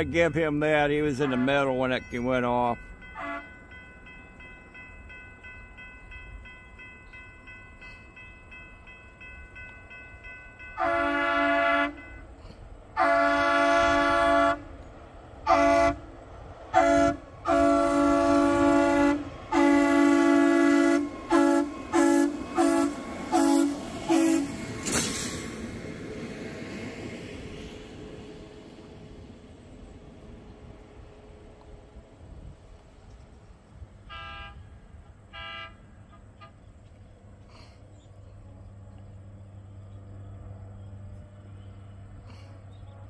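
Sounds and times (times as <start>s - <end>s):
machine horn blasts: 1.2s - 1.7s, 3.1s - 3.6s, 10.6s - 12.2s, 13.0s - 14.6s, 15.4s - 16.0s, 16.7s - 24.6s, 34.0s - 34.7s, 35.3s - 36.6s.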